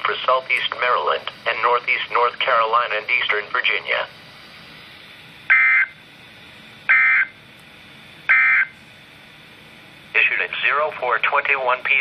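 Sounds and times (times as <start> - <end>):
short buzzing data bursts: 5.5 - 6.0, 6.9 - 7.3, 8.3 - 8.8.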